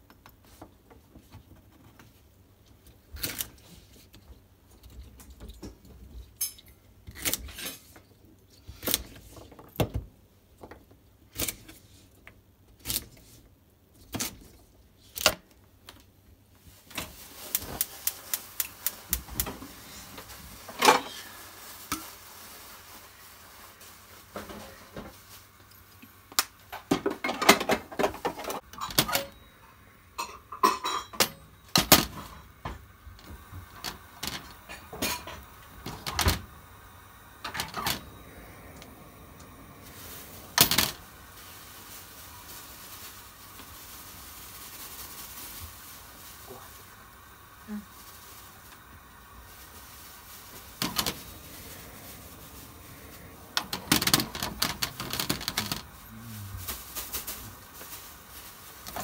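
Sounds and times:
kitchenware clatter: 5.5s - 6.8s, 26.7s - 29.5s, 30.1s - 32.9s, 33.6s - 36.5s.

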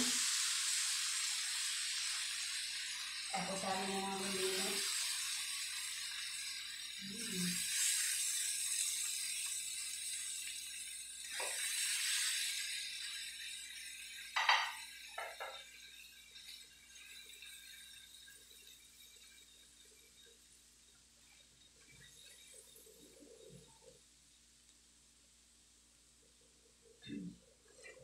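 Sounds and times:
pan sizzling: 0.0s - 28.0s
spatula knocking on wok: 14.4s - 15.6s.

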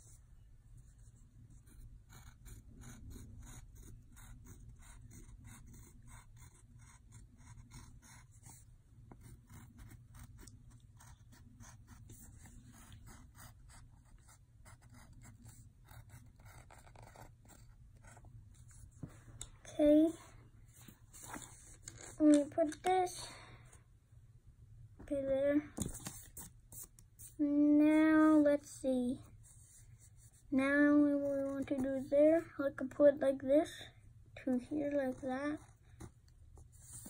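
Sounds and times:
pencil scratching on paper: 0.9s - 19.1s, 29.4s - 32.4s, 34.8s - 37.0s.

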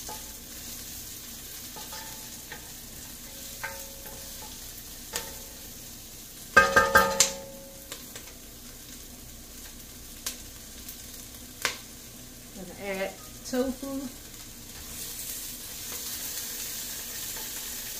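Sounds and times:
spatula stirring: 0.0s - 5.5s
onion sizzling in oil: 0.0s - 17.9s
spatula knocking on pot: 3.6s - 4.6s, 6.6s - 7.5s.

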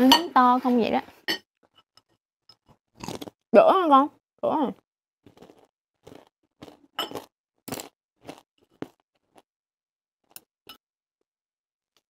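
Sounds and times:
crunching on fried food: 3.0s - 3.4s, 5.2s - 9.5s.

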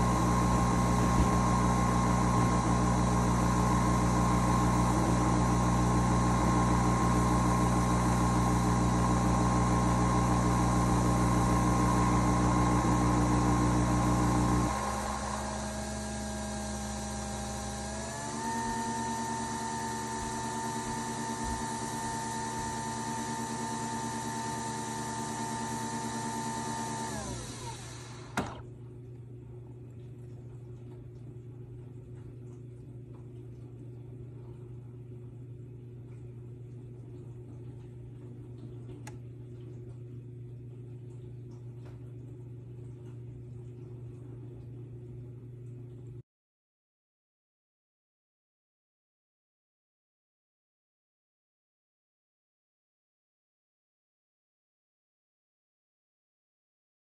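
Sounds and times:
coffee machine motor whirring: 0.0s - 28.6s
low steady hum: 28.6s - 46.2s.

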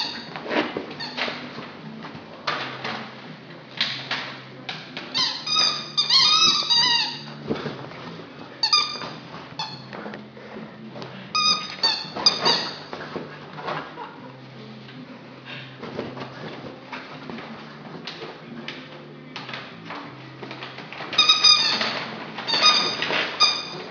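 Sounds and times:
squeaky dog toy squeaking: 0.0s - 1.4s, 5.1s - 7.4s, 8.6s - 9.9s, 11.4s - 12.9s, 21.2s - 23.9s.

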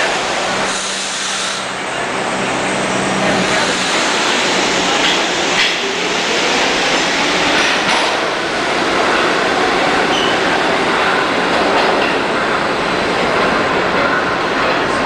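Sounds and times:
subway train motors and wheels: 0.0s - 15.0s.

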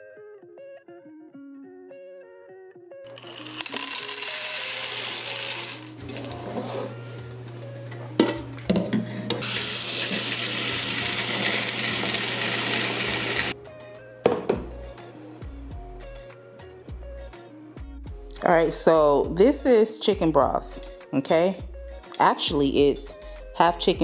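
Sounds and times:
tap water running into metal pot: 8.7s - 13.6s.

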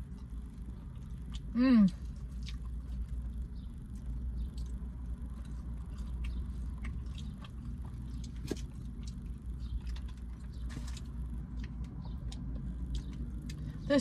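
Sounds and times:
steady low hum: 0.0s - 14.0s
wet mouth chewing smacks: 2.1s - 3.3s, 4.0s - 13.7s.

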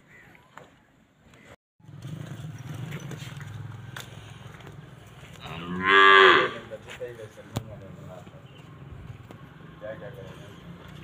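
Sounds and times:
cow mooing: 5.4s - 6.7s.

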